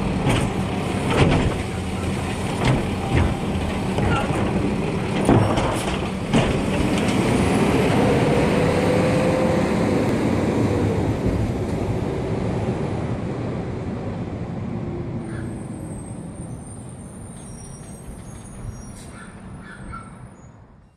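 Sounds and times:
garbage truck clunk: 0.0s - 7.4s
truck engine accelerating with whine: 0.0s - 17.2s.

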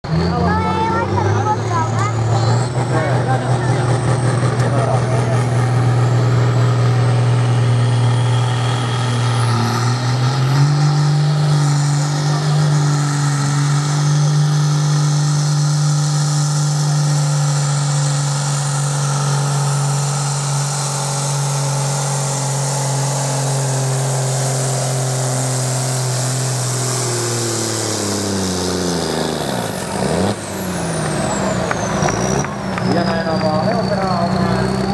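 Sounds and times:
tractor diesel engine under load: 0.0s - 34.9s
high whine: 11.3s - 34.9s.

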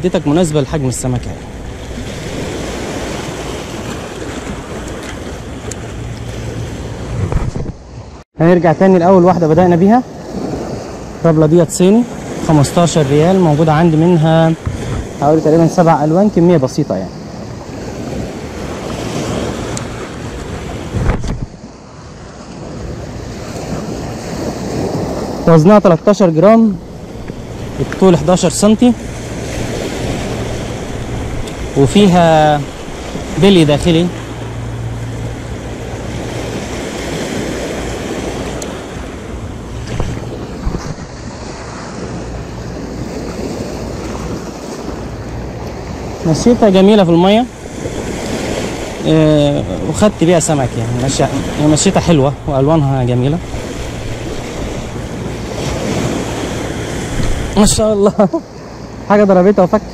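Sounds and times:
wind buffeting microphone: 0.0s - 8.2s, 9.5s - 59.0s
short thump: 7.2s - 7.8s, 39.8s - 41.1s
waves washing over pebbles: 9.8s - 59.9s.

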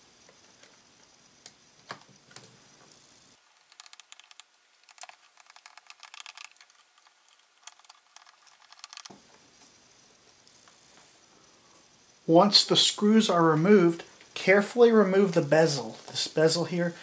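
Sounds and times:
screwdriver clicking on tiny screws: 3.6s - 9.1s.

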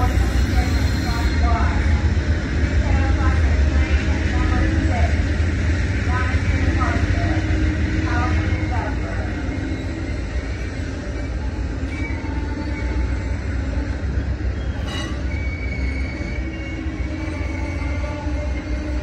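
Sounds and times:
train rumbling: 0.0s - 19.0s
faint wheel squeal: 14.6s - 18.0s.

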